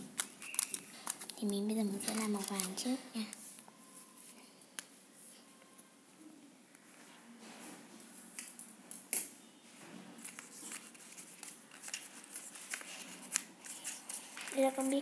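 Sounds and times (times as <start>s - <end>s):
paper rustling: 0.0s - 3.6s, 10.2s - 15.0s.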